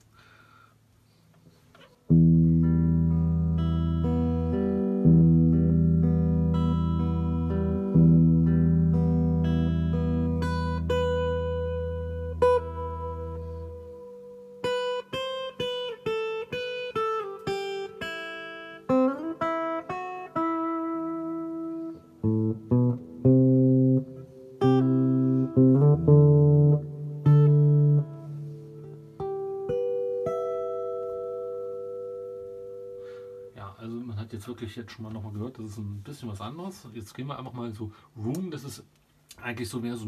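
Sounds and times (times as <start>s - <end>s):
electric guitar with reverb: 2.1s - 33.6s.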